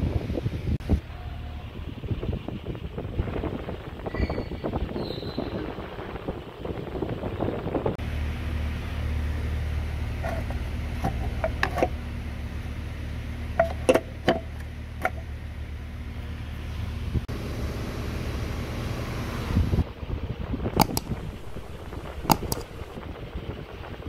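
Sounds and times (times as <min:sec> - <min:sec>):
low mechanical hum: 0:00.0 - 0:24.0
sharp clicks and taps: 0:20.8 - 0:23.0.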